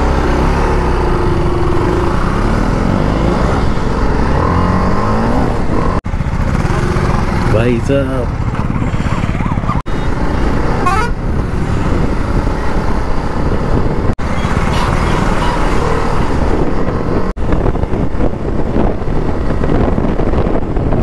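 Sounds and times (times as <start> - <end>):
motorcycle engine running: 0.0 - 21.0
wind buffeting microphone: 8.3 - 21.0.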